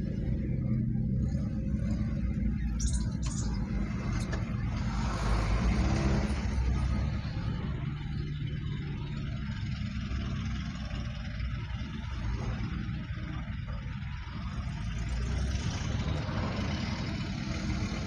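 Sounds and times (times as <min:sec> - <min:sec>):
car engine and tyre rumble: 0:00.0 - 0:18.0
vehicle passing by: 0:03.3 - 0:08.8.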